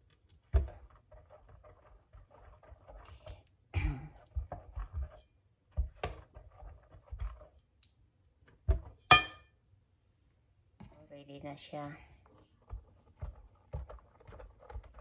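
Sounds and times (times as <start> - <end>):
spatula scraping glass bowl: 0.0 - 3.5, 4.1 - 7.6.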